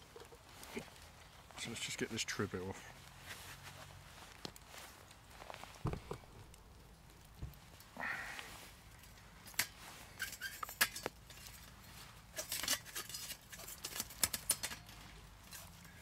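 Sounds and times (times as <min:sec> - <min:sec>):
metallic clinks and scrapes: 0:09.0 - 0:16.0.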